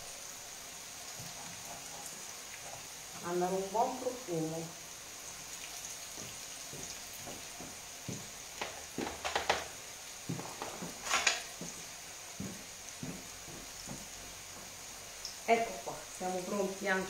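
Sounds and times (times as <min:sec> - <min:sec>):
dough frying in hot oil: 0:00.0 - 0:17.0.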